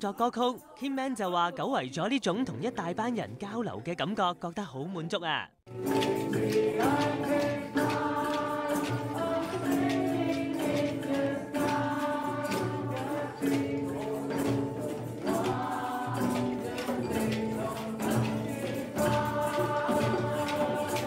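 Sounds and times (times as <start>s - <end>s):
strummed acoustic guitar: 5.7s - 21.0s
group singing along: 5.8s - 21.0s
hand drums beating: 5.8s - 21.0s.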